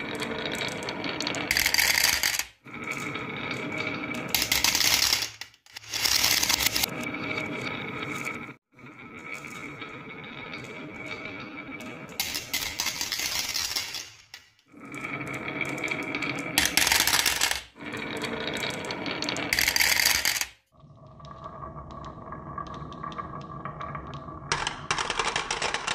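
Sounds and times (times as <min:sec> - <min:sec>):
marbles clattering into plastic: 0:00.0 - 0:06.9, 0:11.8 - 0:20.6, 0:21.3 - 0:25.9
marbles rolling on wooden track: 0:00.0 - 0:25.9.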